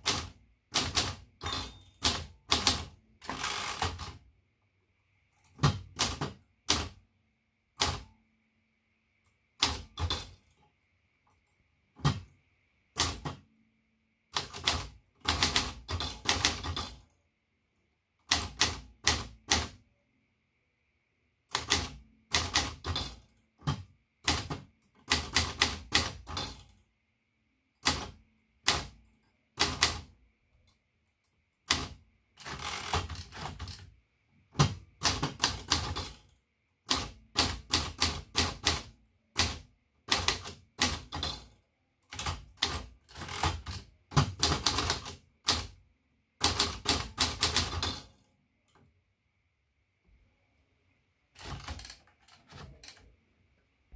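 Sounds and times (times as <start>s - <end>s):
manual typewriter typing: 0.0s - 4.2s, 5.4s - 7.0s, 7.8s - 8.2s, 9.6s - 10.6s, 12.0s - 12.3s, 12.9s - 13.5s, 14.3s - 17.1s, 18.2s - 19.8s, 21.5s - 26.8s, 27.8s - 30.2s, 31.6s - 33.9s, 34.5s - 45.8s, 46.4s - 48.2s, 51.4s - 53.1s.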